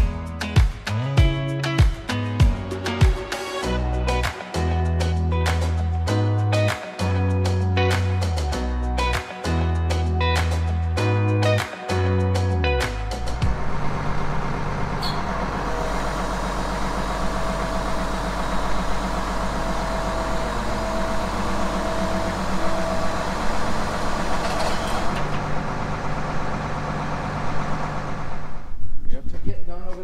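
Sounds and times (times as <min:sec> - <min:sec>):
tractor diesel engine idling: 0:13.2 - 0:28.7.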